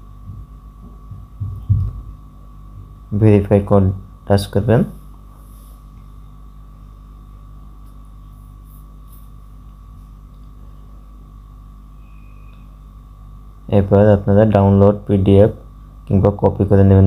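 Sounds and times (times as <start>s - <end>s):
low electrical hum: 0.0s - 17.0s
light hiss: 7.8s - 10.5s
thin high tone: 11.9s - 12.8s.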